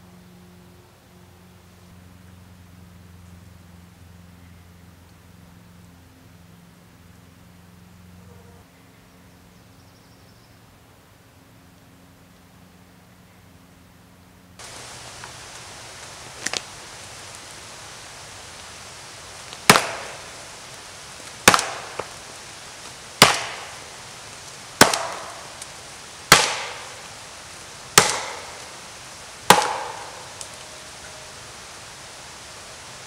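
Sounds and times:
steady hiss: 9.1 - 33.0
axe chopping into tree trunk: 19.7 - 20.2, 21.4 - 22.1, 23.2 - 23.7, 24.8 - 25.4, 26.3 - 26.8, 28.0 - 28.6, 29.5 - 30.2.

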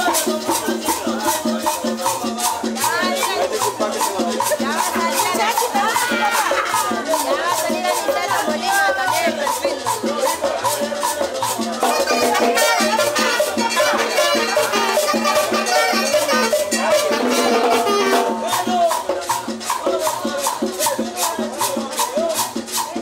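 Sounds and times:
live cumbia band: 0.0 - 23.0
rattling shaker beat: 0.0 - 23.0
saxophone: 11.8 - 18.5.

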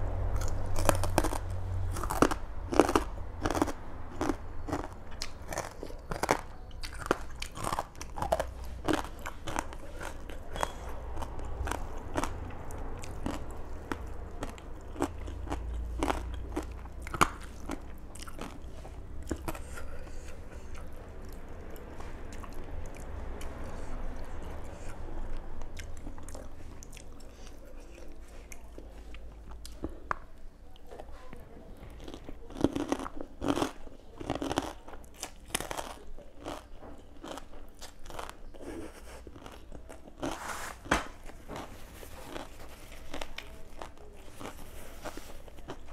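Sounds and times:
crunching and chewing: 0.1 - 45.9
sharp food crackles: 0.3 - 23.9, 31.8 - 45.9.

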